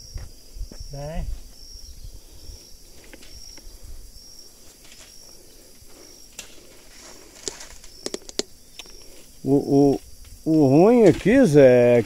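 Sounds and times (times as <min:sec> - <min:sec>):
insect chirping: 0:00.0 - 0:12.0
outdoor ambience: 0:00.0 - 0:12.0
twigs snapping: 0:06.3 - 0:09.1.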